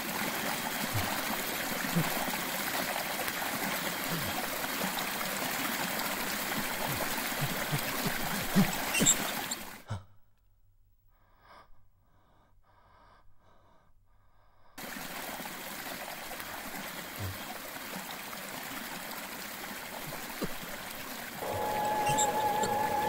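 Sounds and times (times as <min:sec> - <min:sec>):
water running from bathtub tap: 0:00.0 - 0:09.5
man gasping breaths: 0:04.1 - 0:04.4.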